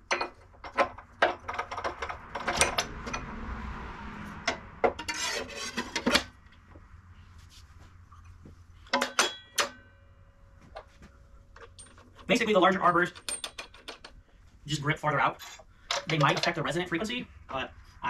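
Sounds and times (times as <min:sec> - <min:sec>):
steel blade clinking and scraping: 0:05.0 - 0:06.2
sharp metal clanks: 0:08.9 - 0:10.1.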